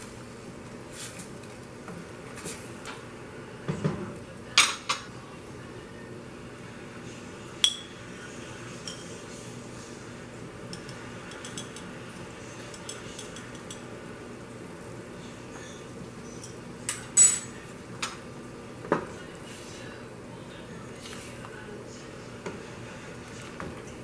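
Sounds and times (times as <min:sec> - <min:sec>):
utensils clinking on metal pot: 0:10.7 - 0:11.9, 0:12.7 - 0:13.9, 0:16.4 - 0:17.6.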